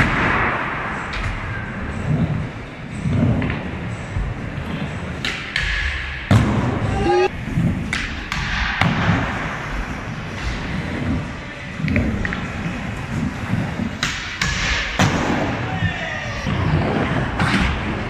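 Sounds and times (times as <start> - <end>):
skateboard wheels rolling on concrete: 6.3 - 18.0.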